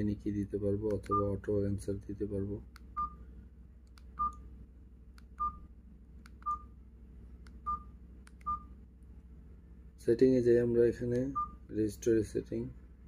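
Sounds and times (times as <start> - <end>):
phone keypad beeps: 3.0 - 3.2, 4.2 - 4.4, 5.4 - 5.7, 6.4 - 6.8, 7.6 - 8.7, 11.3 - 11.6.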